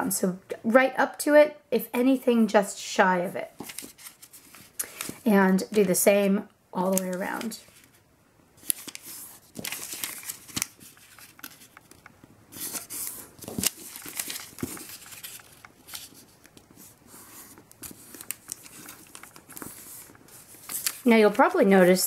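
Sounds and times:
paper rustling and crinkling: 0:03.6 - 0:06.0, 0:06.8 - 0:08.0, 0:08.6 - 0:22.0.

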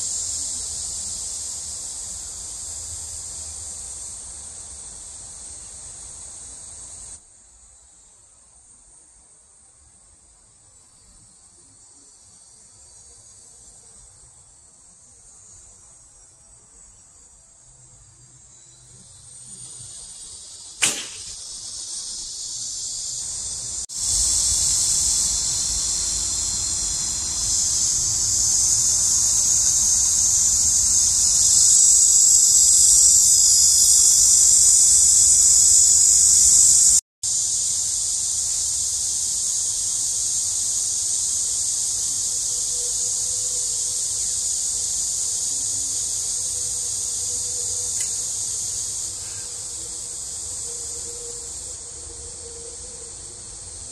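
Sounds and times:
cicada chorus shrilling: 0:00.0 - 0:09.3, 0:09.9 - 0:53.9
bow snap: 0:20.6 - 0:21.8, 0:48.0 - 0:48.2.

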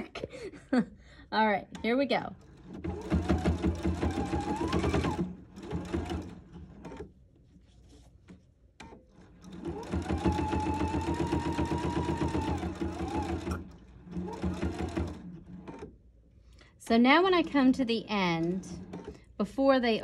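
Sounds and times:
sewing machine stitching: 0:01.7 - 0:07.1, 0:08.8 - 0:16.0, 0:17.0 - 0:19.4.

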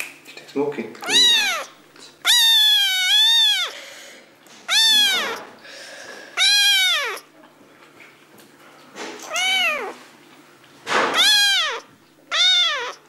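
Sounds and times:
kitten meowing: 0:01.0 - 0:03.8, 0:04.7 - 0:05.6, 0:06.3 - 0:07.3, 0:09.2 - 0:10.0, 0:11.0 - 0:13.0.

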